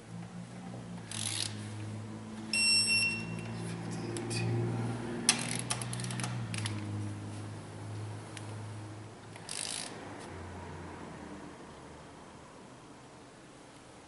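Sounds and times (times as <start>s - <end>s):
ratchet clicking: 1.0s - 1.6s, 5.3s - 6.8s, 9.3s - 10.0s
electronic beep: 2.5s - 3.5s.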